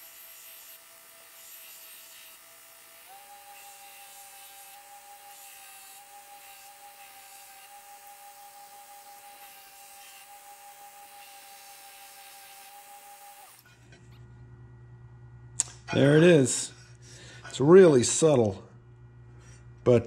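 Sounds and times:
belt grinder grinding steel: 0.0s - 13.8s.

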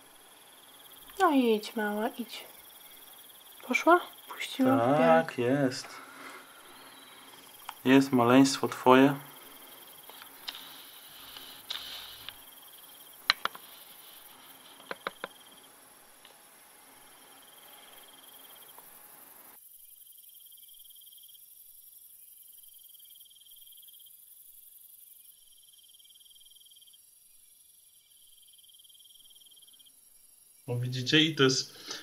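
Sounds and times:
crickets chirping: 0.0s - 32.0s
plastic cup clicks: 13.2s - 13.6s, 14.8s - 15.4s.

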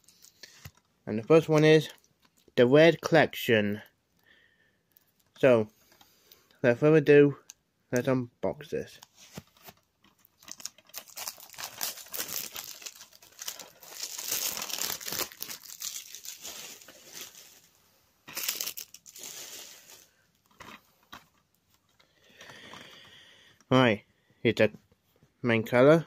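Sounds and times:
plastic shrink-wrap crinkling: 9.6s - 20.8s.

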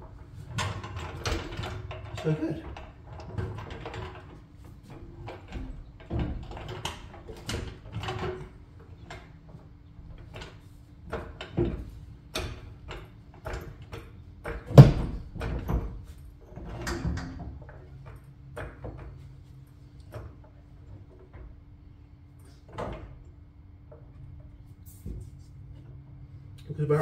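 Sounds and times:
trolley jack clicks and metal knocks: 0.4s - 19.2s.

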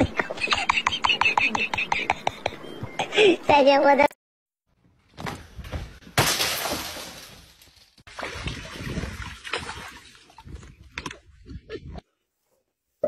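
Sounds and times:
hose water splashing into pool: 8.1s - 10.7s.

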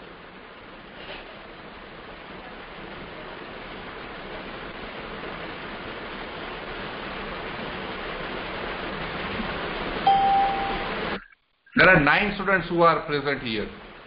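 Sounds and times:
steady hissing noise: 0.0s - 14.0s
short steady beep: 10.0s - 11.0s.

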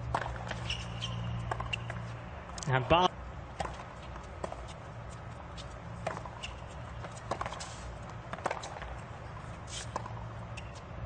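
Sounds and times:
ball bouncing: 0.1s - 2.0s, 6.0s - 9.0s
rackets striking tennis ball: 0.1s - 2.1s, 3.5s - 4.8s, 5.5s - 10.8s.

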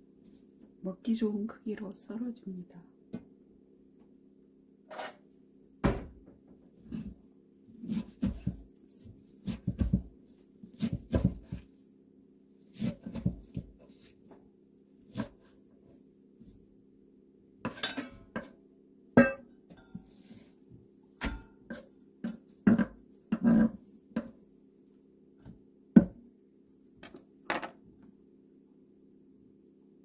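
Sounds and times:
knife chopping on wooden board: 9.5s - 10.1s, 10.8s - 11.6s.

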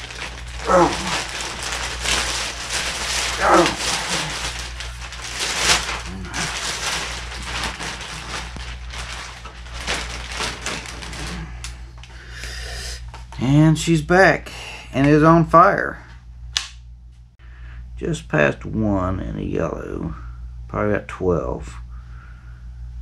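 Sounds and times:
falling whine-like voice: 0.0s - 4.9s, 5.8s - 7.1s
plastic bag crinkling: 0.0s - 12.3s.

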